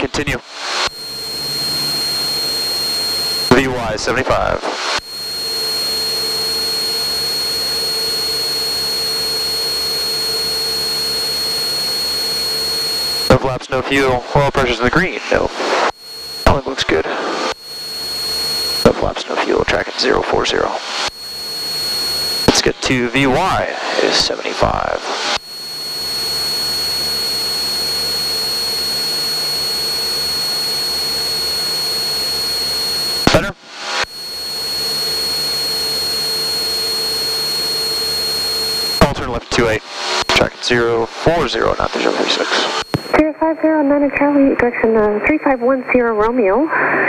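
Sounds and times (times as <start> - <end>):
high whine: 0.0 - 47.0
propeller plane engine drone: 0.0 - 47.0.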